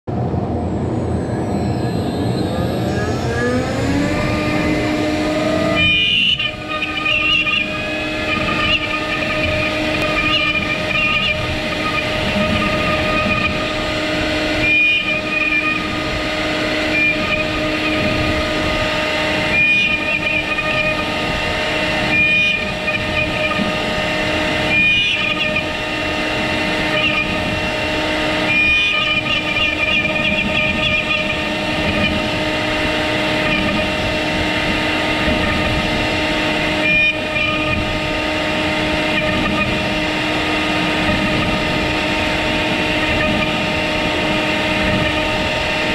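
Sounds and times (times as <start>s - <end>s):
router spindle whine: 0.1s - 45.9s.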